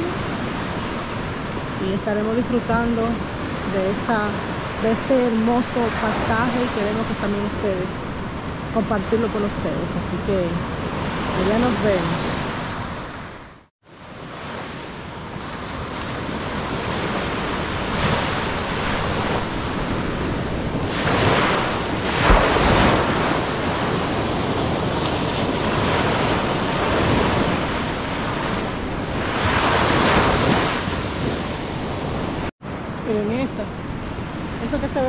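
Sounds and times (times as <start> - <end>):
ocean surf washing on beach: 0.0 - 35.0
wind buffeting microphone: 15.0 - 35.0.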